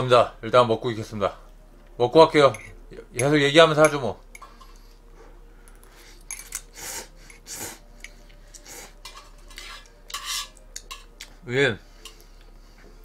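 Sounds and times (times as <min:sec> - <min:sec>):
chopsticks clinking on metal pot: 0:08.0 - 0:11.3.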